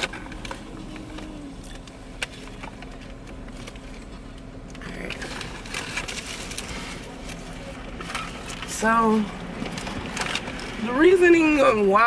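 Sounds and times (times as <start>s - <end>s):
people chewing food: 0.0s - 8.7s.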